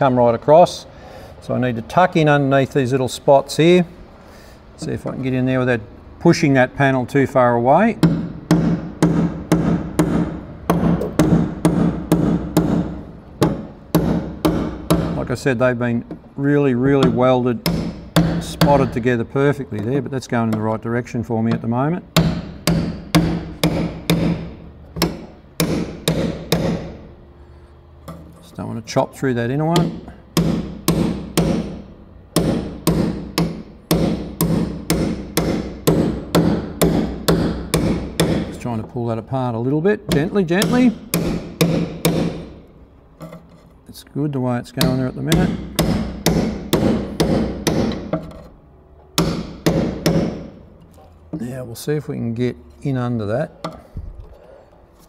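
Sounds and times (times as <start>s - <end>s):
hammer striking chisel on metal: 8.0s - 15.3s, 16.8s - 19.1s, 21.5s - 27.1s, 29.6s - 38.6s, 40.0s - 43.5s, 44.8s - 48.5s, 49.1s - 50.7s.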